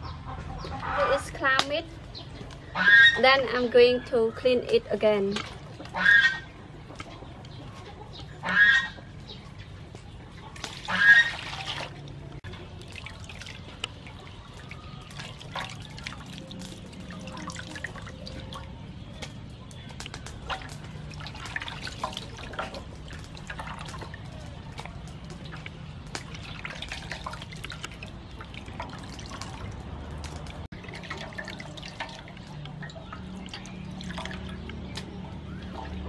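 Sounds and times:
water splashing in metal basin: 4.7 - 7.2, 10.5 - 36.0
wet squelches of clam meat: 4.7 - 36.0.

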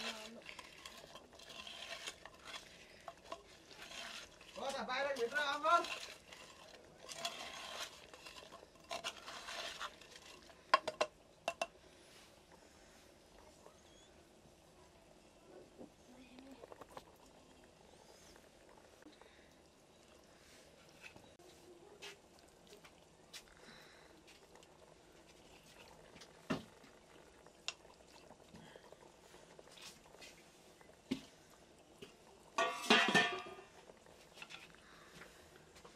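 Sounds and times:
metal spoon scraping a pot: 0.0 - 11.0, 32.6 - 33.7
spoon clinking against pot: 32.6 - 33.6.

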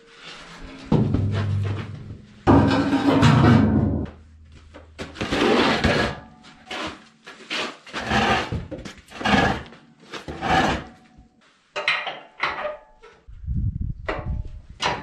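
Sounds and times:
steel scraping on concrete: 2.5 - 3.5, 5.2 - 11.0.

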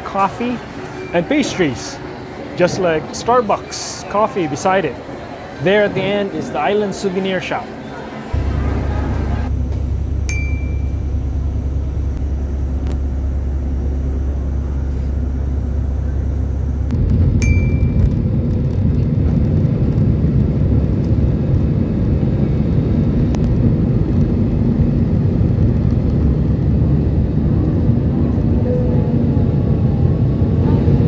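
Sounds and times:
bus engine rumbling: 8.1 - 31.0
short ding: 10.3 - 11.1, 17.4 - 18.2
jet engines at takeoff: 10.9 - 31.0.

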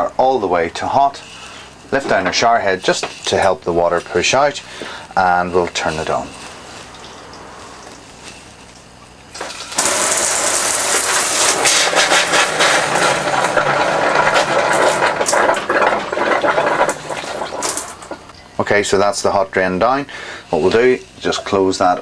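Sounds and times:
water spitting and sputtering: 9.3 - 18.2.

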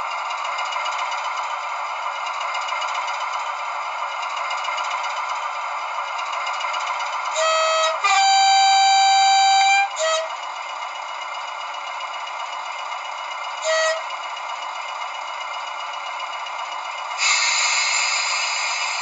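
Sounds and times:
recorded diesel engine idling: 0.0 - 19.0
two-tone diesel horn from speaker: 7.4 - 10.4, 13.6 - 14.1.

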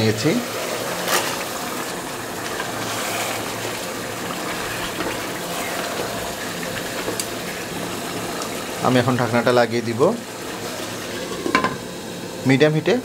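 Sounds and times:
chicken sizzling in a pot: 0.0 - 13.0
wooden spatula stirring: 0.4 - 9.5.

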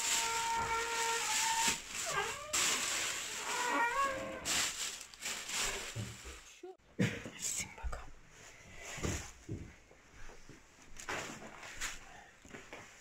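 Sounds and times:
plastic bag rustling: 0.0 - 6.6.

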